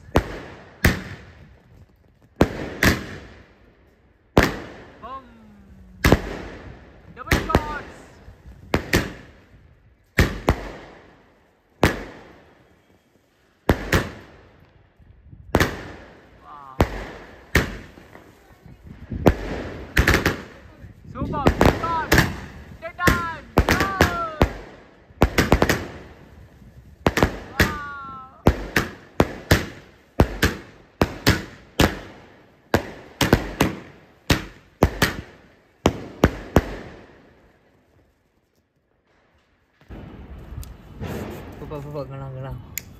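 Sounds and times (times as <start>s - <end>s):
fireworks bangs echoing: 0.0s - 14.8s, 15.4s - 38.0s, 39.0s - 42.4s.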